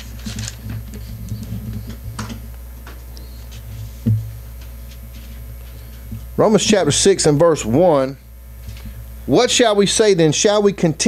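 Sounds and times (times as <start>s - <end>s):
paper pages rustling: 0.0s - 2.4s
low electrical hum: 0.0s - 11.0s.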